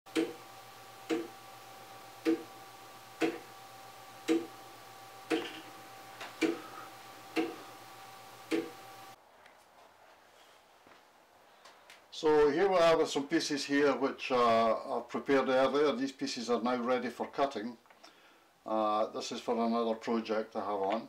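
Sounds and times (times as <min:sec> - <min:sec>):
pendulum clock ticking: 0:00.1 - 0:01.4, 0:02.2 - 0:02.6, 0:03.2 - 0:03.6, 0:04.2 - 0:04.6, 0:05.2 - 0:05.7, 0:06.4 - 0:07.7, 0:08.4 - 0:09.2.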